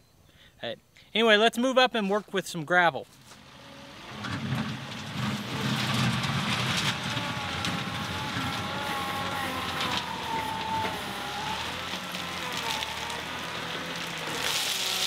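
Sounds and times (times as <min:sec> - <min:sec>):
tractor diesel engine running: 0:03.2 - 0:15.0.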